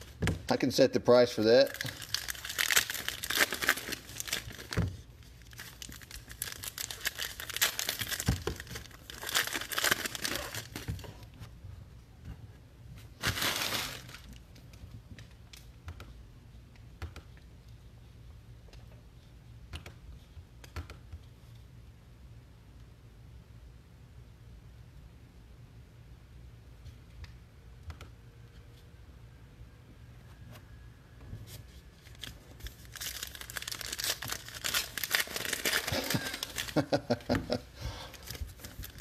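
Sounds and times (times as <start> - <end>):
foil wrapper tearing and crinkling: 1.6 - 4.8, 5.4 - 10.9, 13.2 - 14.4, 32.0 - 37.1, 38.2 - 39.0.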